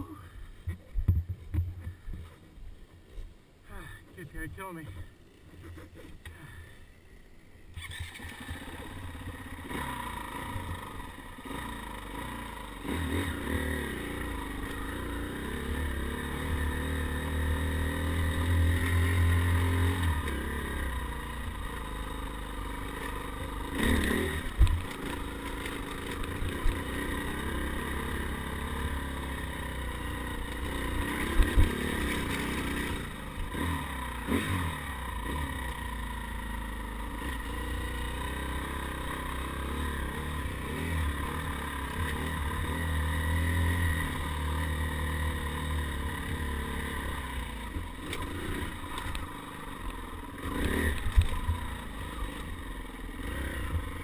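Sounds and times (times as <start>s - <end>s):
bike knocking on rough ground: 0.7s - 2.4s
dirt bike engine revving: 7.7s - 54.0s.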